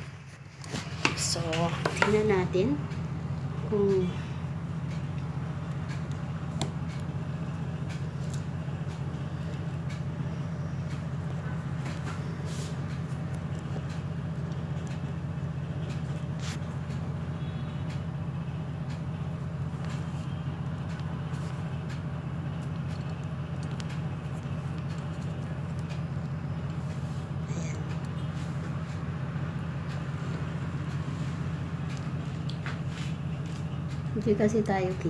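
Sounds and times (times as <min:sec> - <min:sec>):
low mechanical hum: 0:00.0 - 0:35.0
faint clicks and taps: 0:04.7 - 0:18.1, 0:18.8 - 0:27.1.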